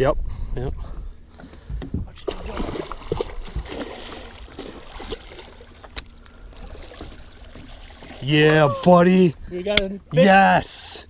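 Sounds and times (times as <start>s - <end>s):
fish thrashing and splashing water: 2.2s - 8.4s.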